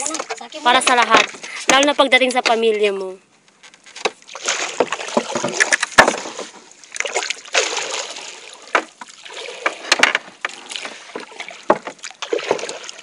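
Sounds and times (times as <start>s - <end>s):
water splashing against boat: 4.1s - 13.0s
pole knocking on hull: 4.7s - 6.6s, 11.2s - 12.7s.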